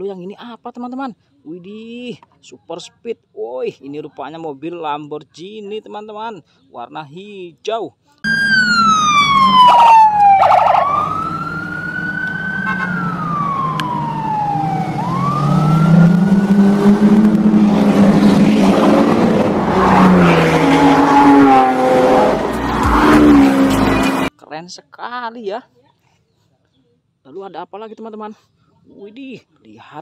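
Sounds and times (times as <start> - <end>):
police siren wailing: 8.3 - 24.3
sports car engines revving: 8.3 - 24.3.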